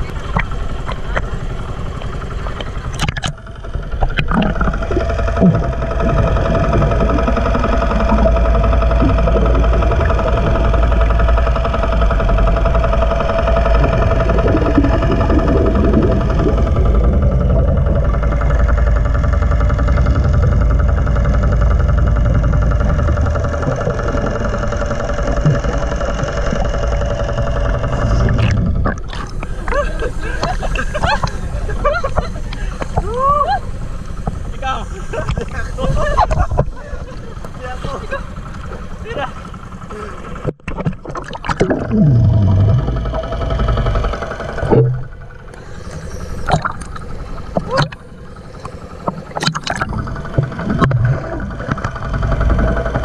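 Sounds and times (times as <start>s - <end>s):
boat engine hum underwater: 0.0s - 53.0s
bubbling exhaled breath: 41.1s - 43.0s.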